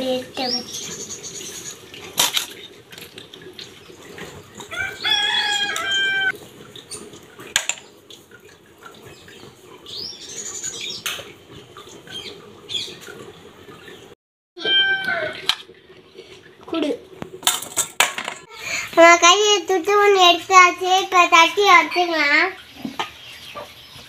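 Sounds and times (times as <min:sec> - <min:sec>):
domestic animal call: 0:14.6 - 0:15.5
faint high animal call: 0:14.6 - 0:15.5.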